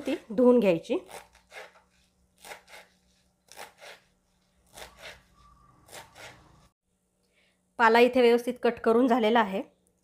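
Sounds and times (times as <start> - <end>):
knife cutting on wooden board: 1.1 - 5.3, 5.9 - 6.5.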